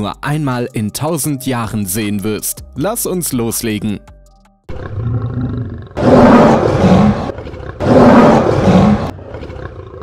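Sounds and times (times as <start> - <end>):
lion roaring: 4.7 - 10.0.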